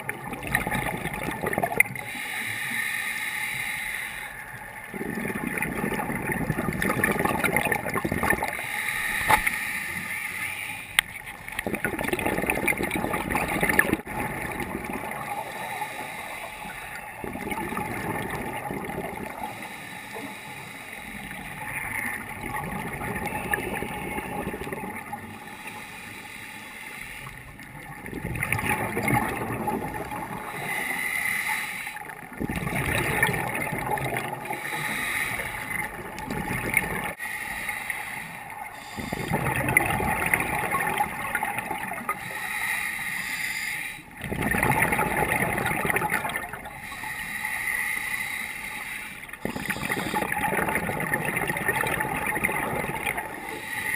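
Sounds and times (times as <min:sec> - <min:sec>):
underwater regulator bubbles gurgling: 0:00.0 - 0:03.6, 0:04.3 - 0:26.3, 0:27.0 - 0:53.9
water hiss: 0:02.0 - 0:04.6, 0:08.5 - 0:11.0, 0:15.2 - 0:17.1, 0:19.1 - 0:22.0, 0:30.3 - 0:32.1, 0:34.5 - 0:36.1, 0:37.0 - 0:39.5, 0:40.6 - 0:44.2, 0:46.6 - 0:50.4, 0:52.9 - 0:53.9.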